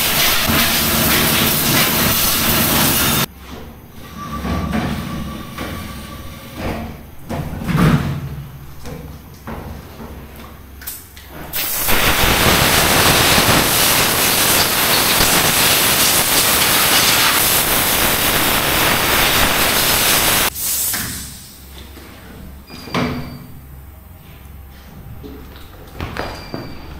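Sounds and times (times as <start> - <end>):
compressed air gun hissing: 11.6 - 21.4.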